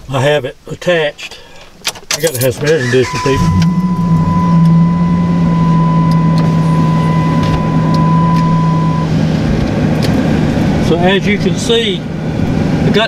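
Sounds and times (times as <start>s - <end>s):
air conditioning blower rushing: 2.7s - 13.0s
low hum: 2.8s - 13.0s
thin high steady tone: 3.0s - 9.5s.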